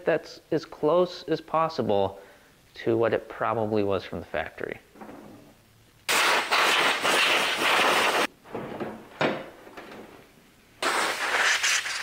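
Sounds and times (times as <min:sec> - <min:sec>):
compressed air blow gun hissing: 0:06.1 - 0:08.3, 0:10.8 - 0:12.0
cable clattering: 0:08.5 - 0:10.3.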